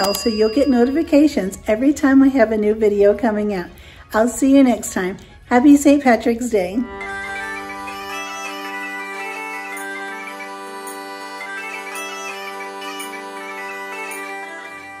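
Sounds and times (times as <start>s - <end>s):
bagpipe music with drone: 6.5s - 15.0s.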